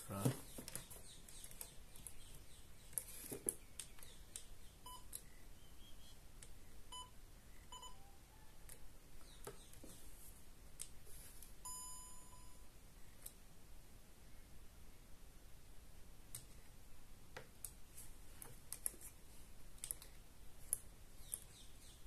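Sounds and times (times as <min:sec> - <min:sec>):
handling clicks and rustles: 0:00.1 - 0:04.5
electronic beeps: 0:04.8 - 0:05.2, 0:06.9 - 0:08.2.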